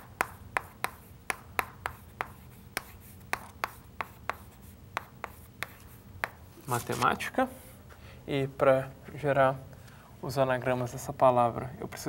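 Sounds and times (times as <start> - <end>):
chalk tapping on a chalkboard: 0.0 - 6.5.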